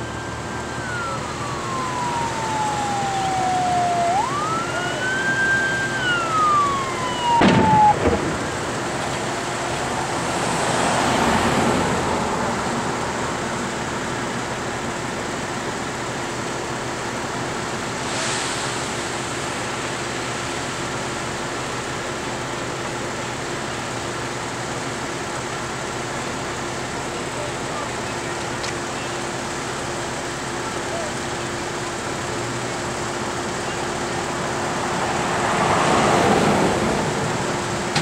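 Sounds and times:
fire rushing: 0:00.0 - 0:14.2
fire engine siren wailing: 0:00.0 - 0:18.1, 0:18.9 - 0:38.0
sharp bang: 0:07.3 - 0:08.6.

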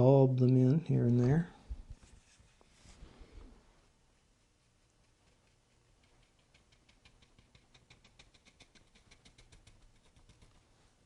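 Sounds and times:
brush tapping on paper: 0:04.9 - 0:10.6.

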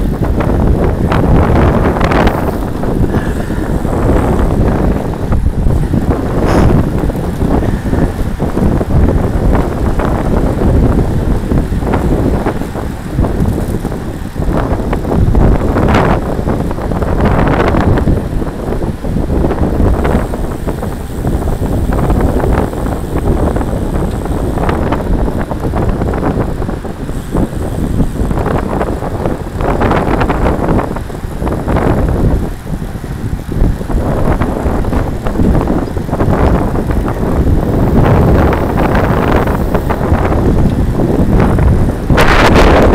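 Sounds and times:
wind buffeting microphone: 0:00.0 - 0:42.9.

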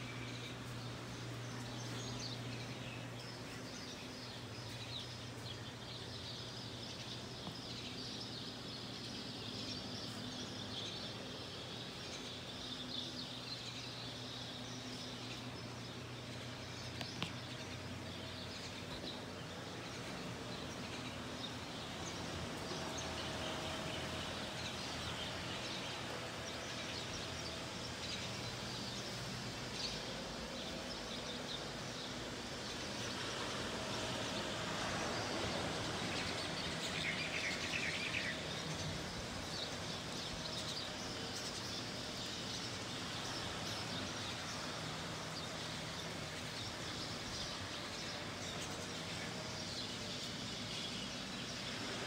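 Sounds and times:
steady low hum: 0:00.0 - 0:37.8
birds chirping: 0:00.0 - 0:52.0.

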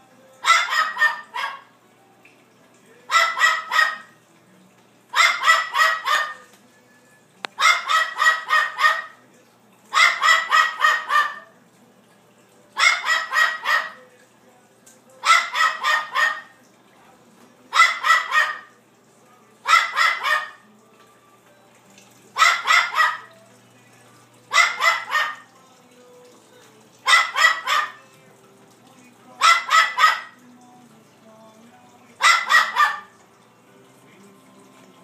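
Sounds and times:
parrot imitating dog barks: 0:00.4 - 0:01.7, 0:03.1 - 0:04.2, 0:05.1 - 0:06.5, 0:07.6 - 0:09.2, 0:09.9 - 0:11.6, 0:12.8 - 0:14.1, 0:15.2 - 0:16.6, 0:17.7 - 0:18.7, 0:19.6 - 0:20.6, 0:22.4 - 0:23.3, 0:24.5 - 0:25.5, 0:27.0 - 0:28.1, 0:29.4 - 0:30.4, 0:32.2 - 0:33.2.

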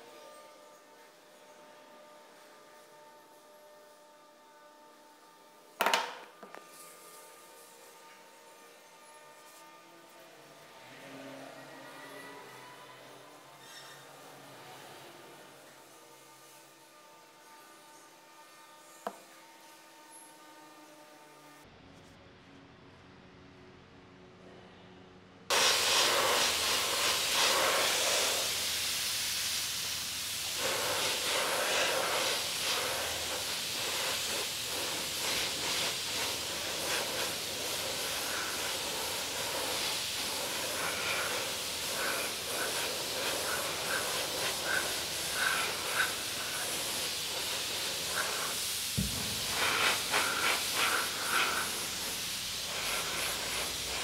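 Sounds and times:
spray paint can hissing: 0:25.5 - 0:54.0.

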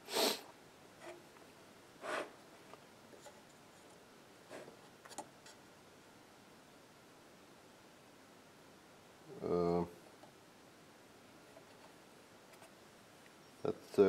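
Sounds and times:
short breathy hiss: 0:00.0 - 0:00.5
low steady hiss: 0:00.0 - 0:14.0.

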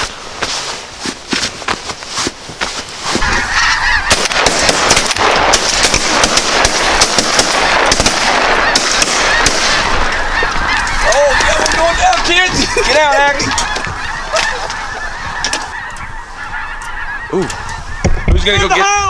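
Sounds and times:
geese honking: 0:03.0 - 0:19.0
shotgun fire: 0:04.1 - 0:10.0.

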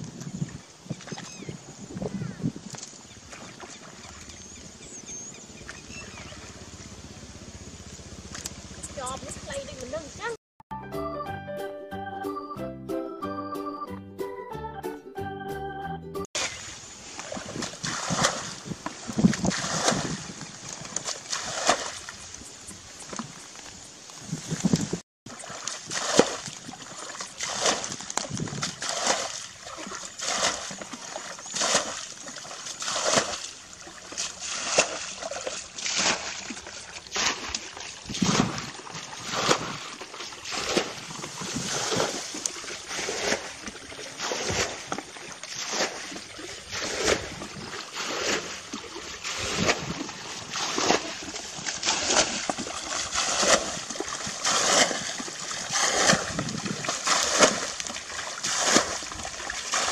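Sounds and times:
hands splashing in muddy water: 0:16.4 - 0:22.2, 0:24.6 - 0:59.9.

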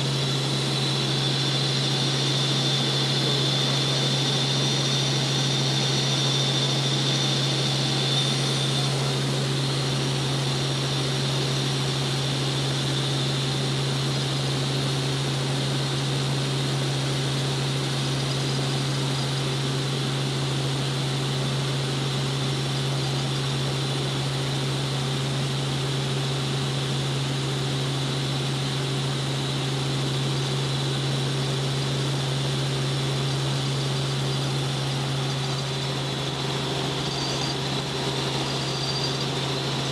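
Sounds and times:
thin high whine: 0:00.0 - 0:13.5, 0:30.3 - 0:39.9
helicopter rotor and engine drone: 0:00.0 - 0:39.9.

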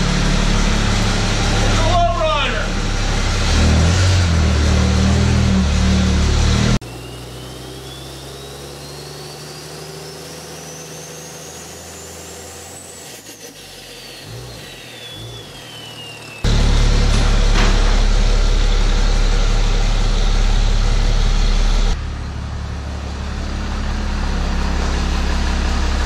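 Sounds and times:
diesel engine running: 0:00.0 - 0:26.0
thin whistling tone: 0:06.9 - 0:12.2, 0:13.9 - 0:16.4
low drone: 0:16.4 - 0:26.0.

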